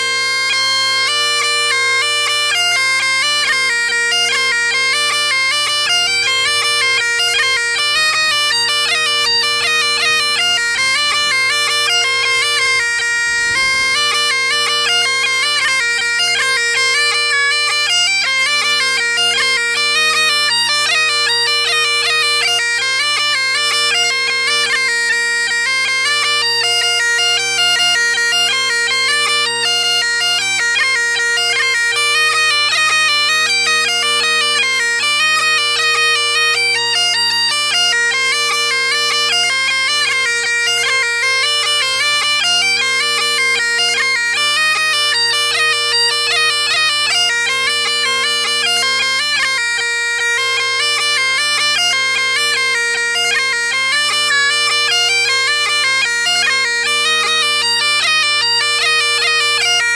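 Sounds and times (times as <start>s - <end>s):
bagpipe playing: 0.0s - 59.9s.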